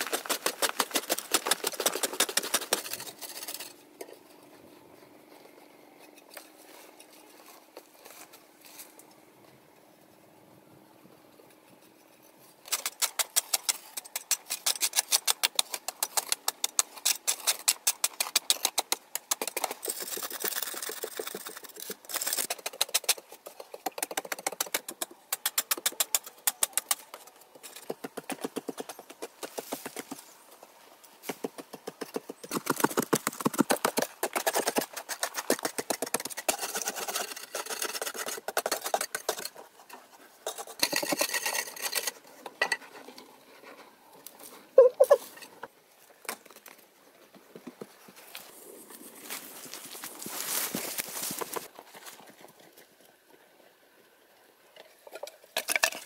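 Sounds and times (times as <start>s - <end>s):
metal tools scraping earth wall: 0.0s - 9.0s, 11.6s - 30.4s, 31.2s - 46.8s.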